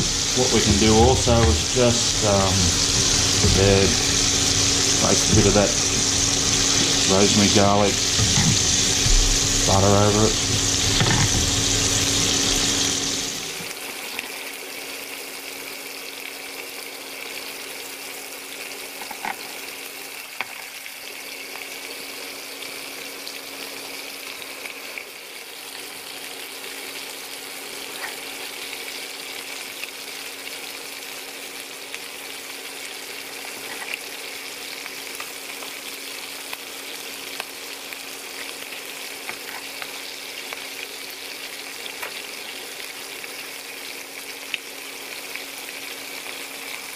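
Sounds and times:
steaks sizzling in a frying pan: 0.0 - 46.9.

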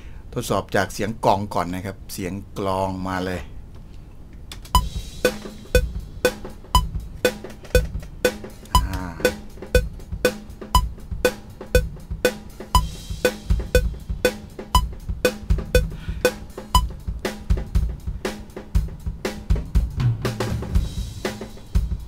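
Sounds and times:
drum beat with delay effect: 4.8 - 18.0.

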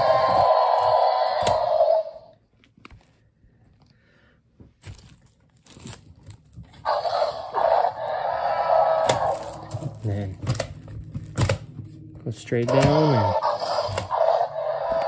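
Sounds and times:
electronic toy dinosaur roar: 0.0 - 2.3, 6.8 - 10.0, 12.6 - 15.0.

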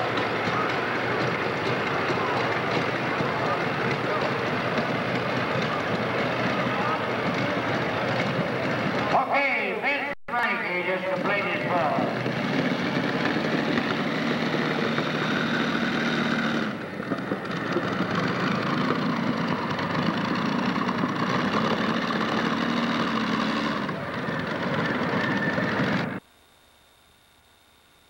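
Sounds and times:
tractor engines running: 0.0 - 26.2.

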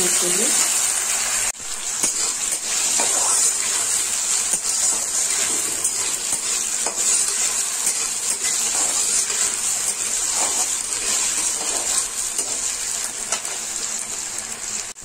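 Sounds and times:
potatoes and onions sizzling in oil: 0.0 - 15.0
metal spatula scraping pan: 2.0 - 13.6.

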